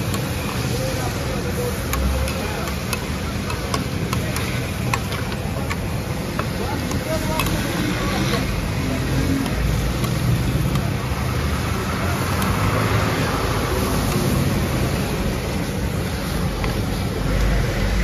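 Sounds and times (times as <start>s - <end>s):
traffic hiss: 0.0s - 18.0s
traffic rumble: 0.0s - 18.0s.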